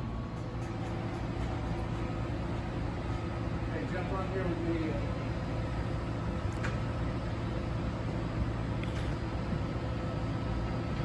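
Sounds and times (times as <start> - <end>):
faint steady whine: 0.0 - 11.0.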